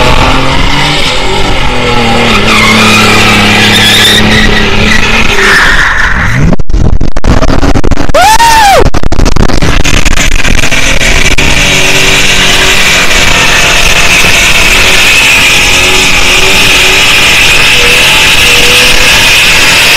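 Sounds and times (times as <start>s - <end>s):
car engine at high revs: 0.0s - 19.9s
tyres squealing: 1.9s - 6.1s.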